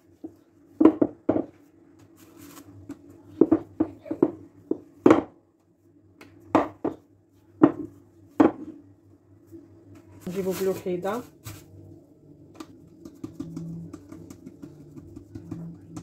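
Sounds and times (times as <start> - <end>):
rolling pin rolling dough: 12.8 - 16.0.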